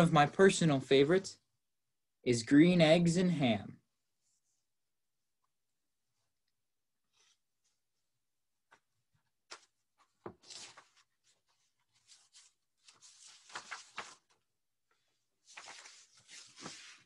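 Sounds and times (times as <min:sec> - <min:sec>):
book being handled: 0:08.6 - 0:14.5, 0:15.4 - 0:17.0
book pages turning: 0:08.7 - 0:14.5, 0:15.4 - 0:17.0.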